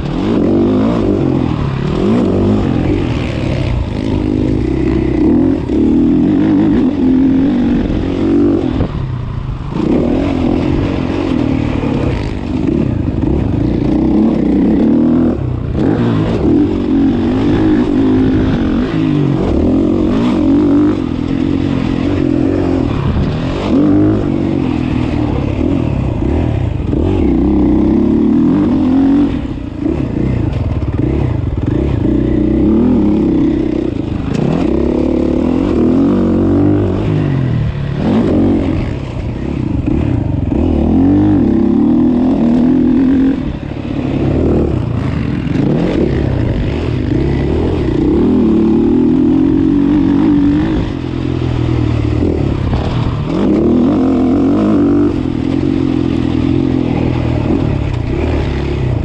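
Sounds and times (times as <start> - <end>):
motorbike engine revving: 0.0 - 59.0.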